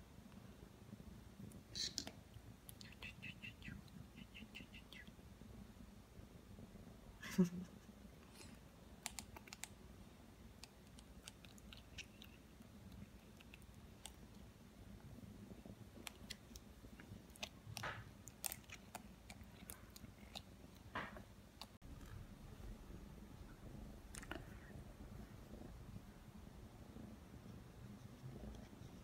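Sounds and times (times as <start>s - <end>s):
crackles: 7.8s - 9.8s, 10.4s - 29.0s.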